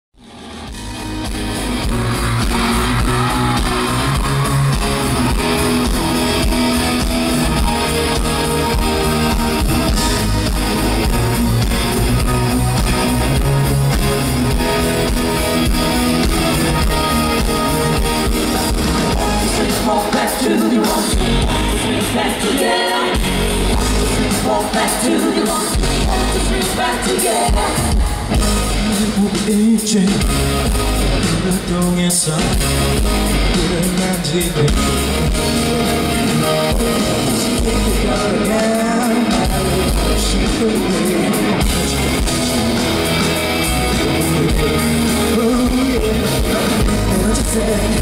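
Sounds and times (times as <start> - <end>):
live pop-dance music: 0.2 - 48.0.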